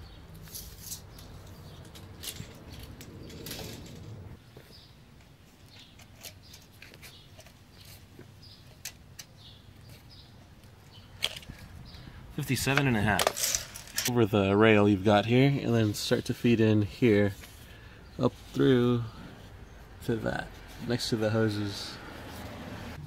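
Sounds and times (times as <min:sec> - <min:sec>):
tape measure clicks and rustles: 0:00.3 - 0:04.2, 0:12.8 - 0:14.1.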